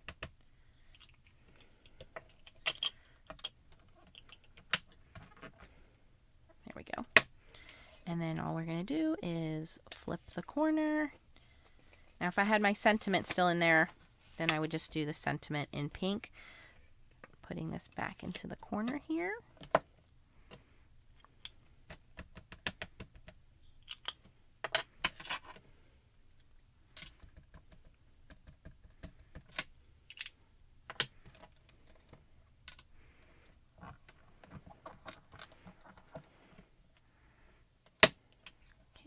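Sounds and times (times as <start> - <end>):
plastic cubes clicking and tapping: 0.0 - 0.4, 1.8 - 5.6, 21.4 - 25.4, 26.9 - 32.9.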